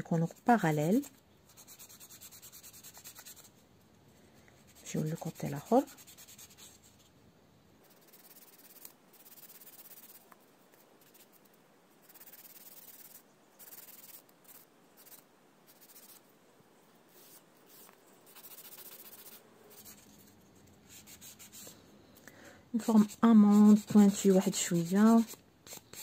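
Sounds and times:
nail file rasping on nail: 0.2s - 3.5s, 7.8s - 10.2s, 12.0s - 16.2s, 18.3s - 20.0s, 22.8s - 26.0s.

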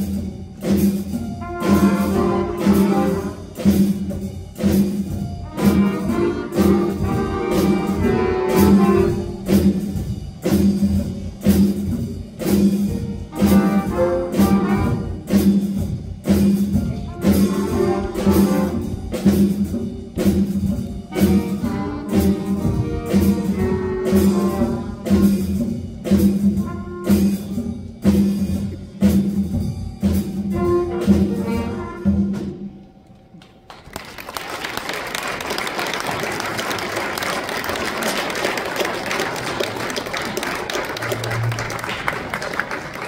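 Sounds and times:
jazz band playing: 0.0s - 43.0s
audience applauding: 33.4s - 43.0s.

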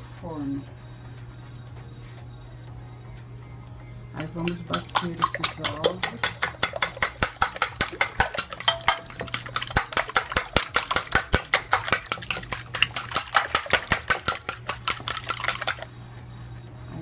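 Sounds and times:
utensil clicking against glass: 4.2s - 15.9s.

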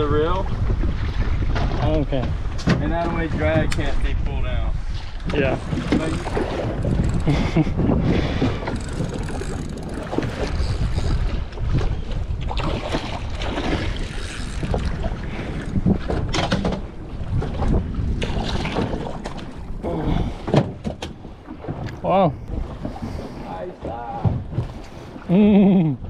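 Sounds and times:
water washing along hull: 0.0s - 26.0s
wind buffeting microphone: 0.0s - 26.0s
fishing reel clicking: 8.6s - 11.2s, 14.1s - 14.8s.

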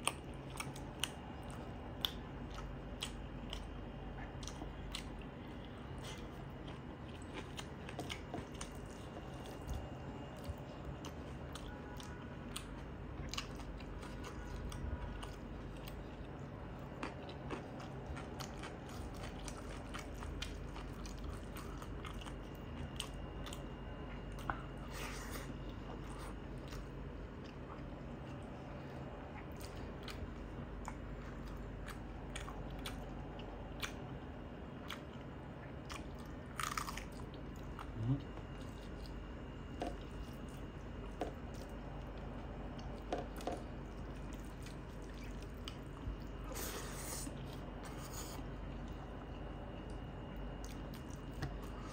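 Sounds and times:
close-up chewing and biting: 0.0s - 51.9s.

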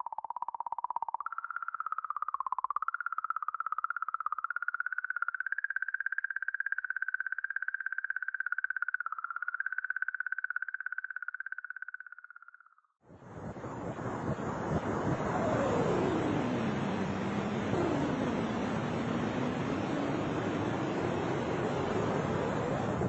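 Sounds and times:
warbling pulsed tone: 13.1s - 23.0s.

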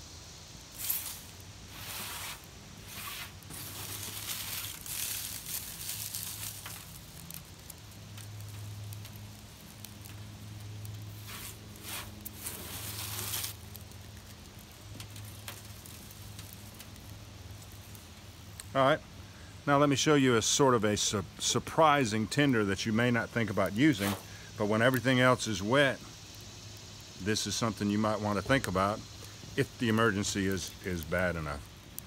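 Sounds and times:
dry leaves rustling and crinkling: 0.7s - 18.2s, 23.7s - 24.3s.

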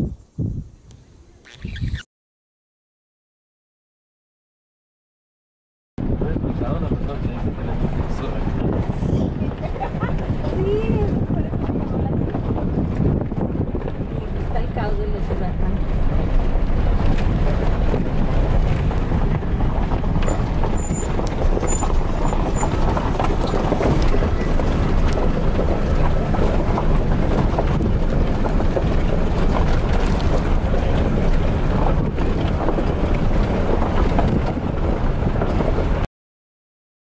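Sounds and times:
vehicle rumbling on dirt road: 6.0s - 36.1s
rattles and knocks: 15.8s - 36.0s.

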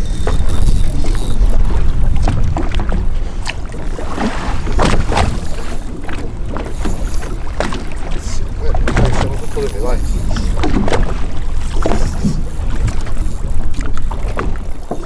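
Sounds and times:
water slapping against boat hull: 0.0s - 15.0s
wind rumble on microphone: 0.0s - 15.0s
sharp splashes or knocks: 4.0s - 6.2s, 8.8s - 9.4s.

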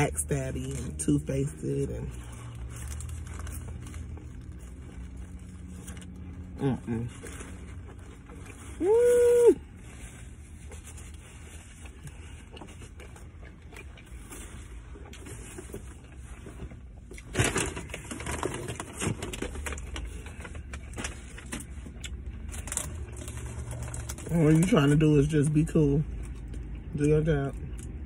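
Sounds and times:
low steady hum: 0.0s - 28.0s
paper wrapper crinkling: 2.1s - 6.5s, 17.2s - 25.0s
quiet chewing: 10.6s - 17.3s.

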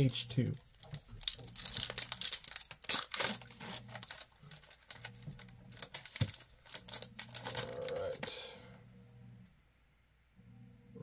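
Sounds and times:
card pack wrapper crinkling: 0.4s - 8.4s.

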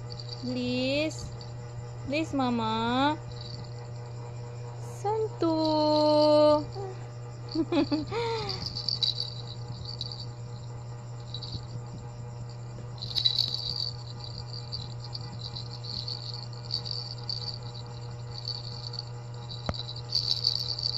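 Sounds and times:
plastic rattle toy jingling: 0.0s - 1.4s, 3.3s - 3.8s, 7.5s - 10.3s, 11.2s - 11.7s, 13.0s - 20.9s
steady low hum: 0.0s - 20.9s.

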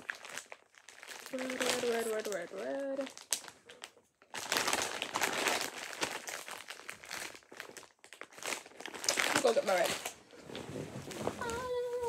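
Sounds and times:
pipe cleaners rustling and crinkling: 0.0s - 12.0s.

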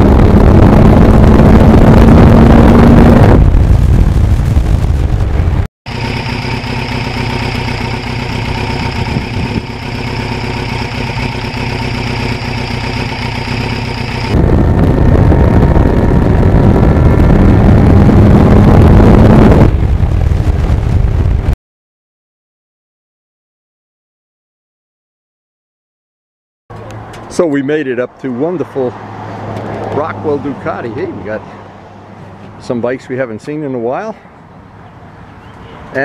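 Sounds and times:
wind rush while riding: 0.0s - 5.7s, 8.6s - 9.8s, 12.9s - 21.6s
motorcycle engine idling: 5.9s - 14.3s.

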